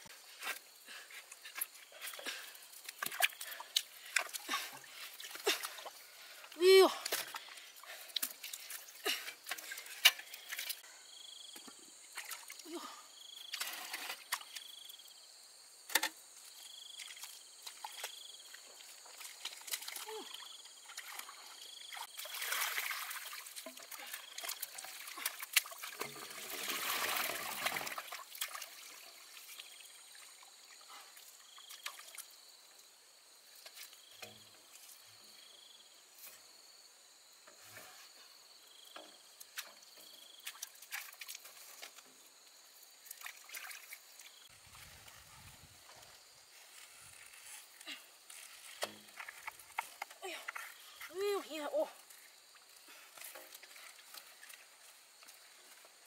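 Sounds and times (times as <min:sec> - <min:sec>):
sharp splashes: 0:19.6 - 0:29.6.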